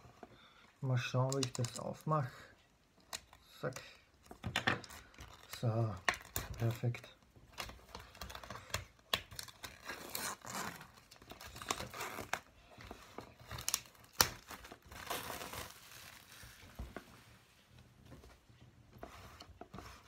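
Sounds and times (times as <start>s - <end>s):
packaging rustling: 4.7s - 17.2s.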